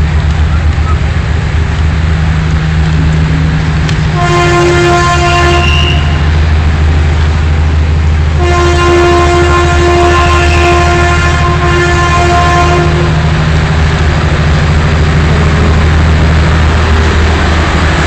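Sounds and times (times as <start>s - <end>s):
engine rumble: 0.0s - 18.0s
locomotive horn blasts: 4.0s - 6.4s, 8.4s - 13.3s.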